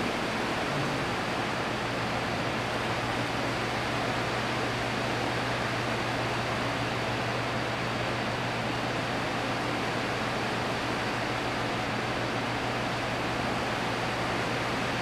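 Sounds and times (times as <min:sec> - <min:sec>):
low motor hum: 0:00.0 - 0:01.6
electric fan running: 0:00.0 - 0:15.0.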